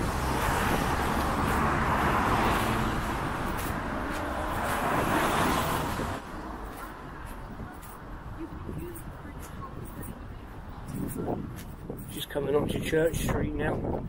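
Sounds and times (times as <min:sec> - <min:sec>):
car passing: 0:00.0 - 0:09.8
van passing: 0:00.0 - 0:09.8.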